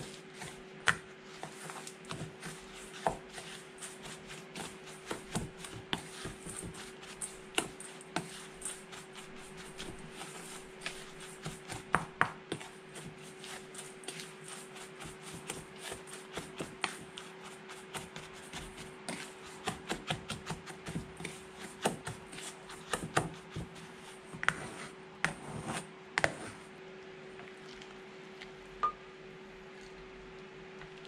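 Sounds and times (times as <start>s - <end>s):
spatula scraping metal bowl: 13.2s - 14.9s, 24.4s - 26.6s
faint steady hum: 23.7s - 31.0s.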